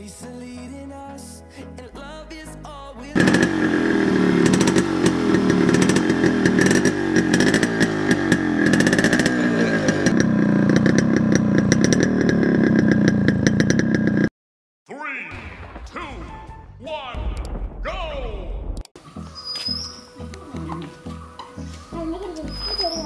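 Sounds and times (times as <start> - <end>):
two-stroke motorcycle engine revving: 3.2 - 14.3.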